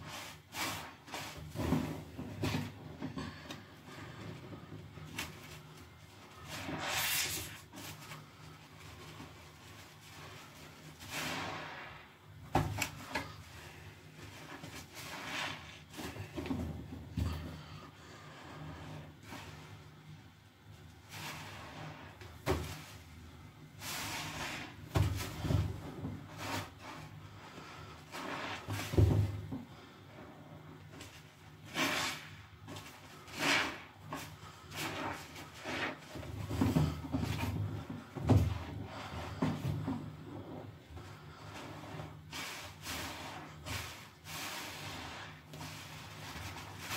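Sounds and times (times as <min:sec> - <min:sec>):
sponges squelching in foam: 0:00.0 - 0:02.8, 0:05.0 - 0:12.1, 0:13.0 - 0:16.4, 0:21.0 - 0:23.1, 0:23.8 - 0:29.0, 0:31.1 - 0:40.6, 0:41.3 - 0:46.9.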